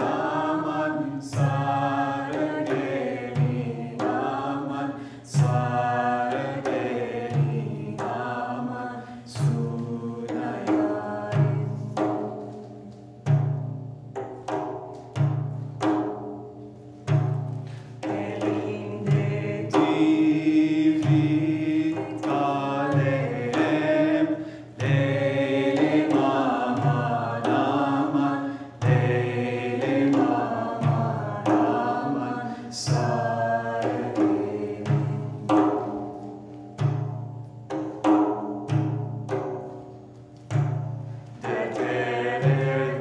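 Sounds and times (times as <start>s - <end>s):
frame drums playing: 0.0s - 43.0s
person singing folk melody: 18.1s - 35.5s.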